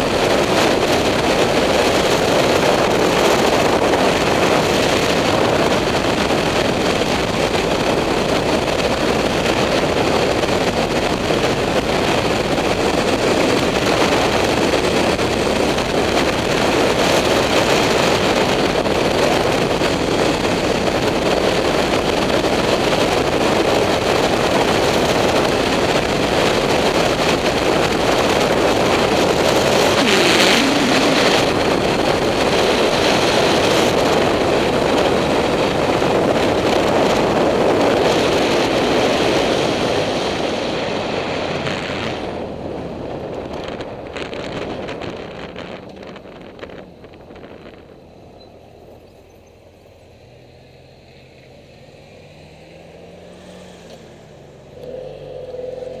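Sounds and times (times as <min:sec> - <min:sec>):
motorcycle engine: 0:00.0 - 0:56.0
wind and road noise: 0:00.0 - 0:56.0.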